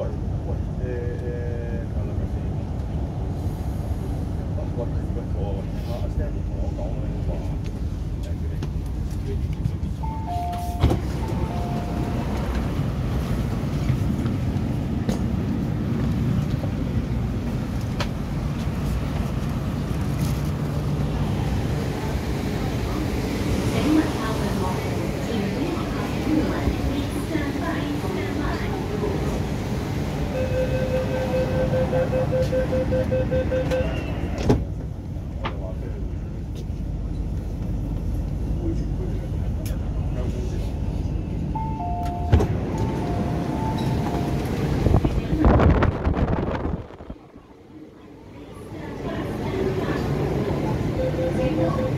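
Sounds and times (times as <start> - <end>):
train low rumble: 0.0 - 51.9
door-closing warning beeps: 10.0 - 12.4, 30.4 - 34.4, 41.6 - 44.4
train doors thumping shut: 10.4 - 12.8, 33.6 - 34.9, 42.0 - 43.1.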